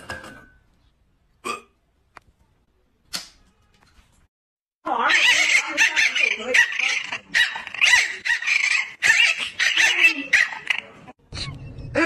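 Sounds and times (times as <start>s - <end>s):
puppy barking: 5.0s - 10.8s.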